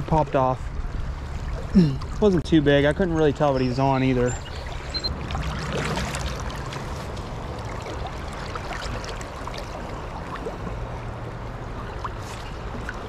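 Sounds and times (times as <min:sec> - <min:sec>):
shallow stream rushing: 0:04.1 - 0:13.0
small water splashes: 0:04.2 - 0:13.0.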